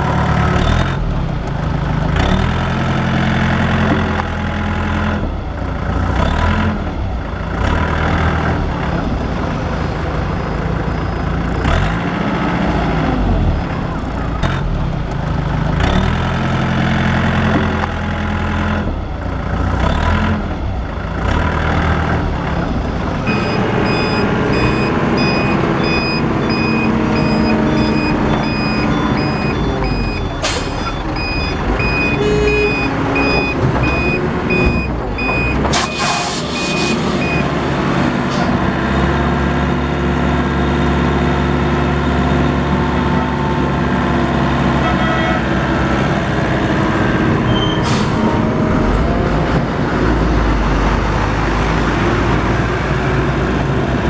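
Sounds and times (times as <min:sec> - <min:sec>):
excavator diesel engine running: 0:00.0 - 0:54.0
reversing alarm beeps: 0:23.3 - 0:37.5.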